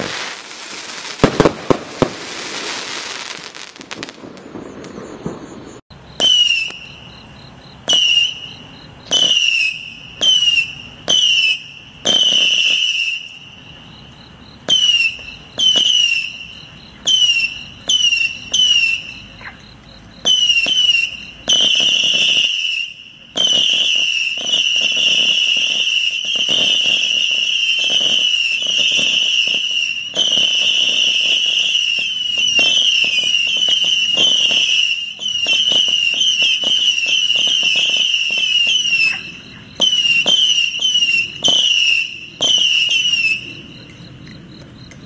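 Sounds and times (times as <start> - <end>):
firework pops: 0.0 - 5.6, 6.2 - 7.0, 32.0 - 43.4
whistling firework shots: 0.0 - 44.9.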